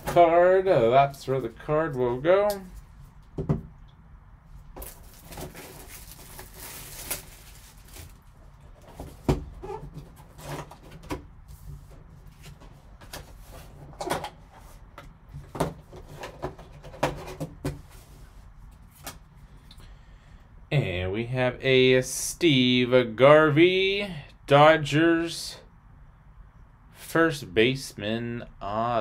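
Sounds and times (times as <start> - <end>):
plastic shrink-wrap crinkling: 4.8 - 8.4.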